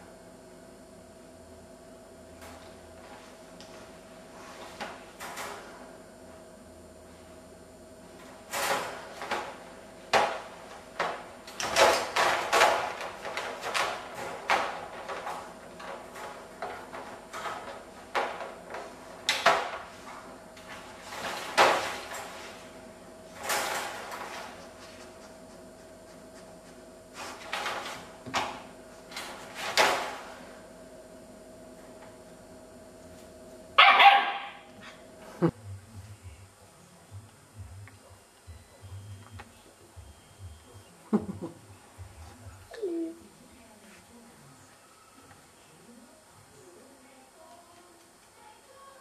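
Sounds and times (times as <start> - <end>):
wire dog crate rattling: 8.5 - 22.7, 23.4 - 24.6.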